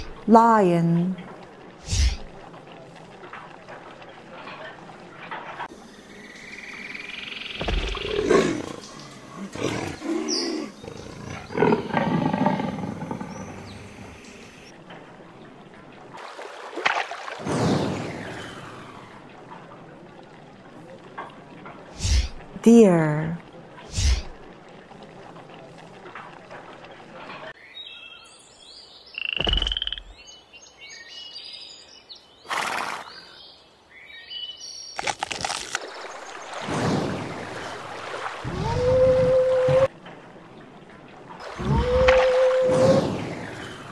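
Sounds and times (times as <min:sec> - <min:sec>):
lion roaring: 0:08.0 - 0:14.2.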